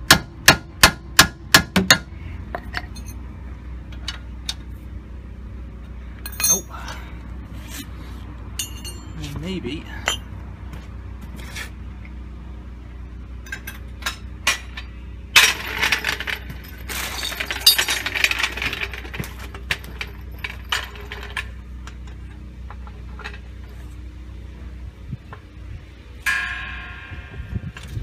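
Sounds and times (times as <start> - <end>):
metal hand tools clinking: 6.3 - 6.8, 8.6 - 9.3
rattling scrape: 11.4 - 11.8, 15.4 - 21.5.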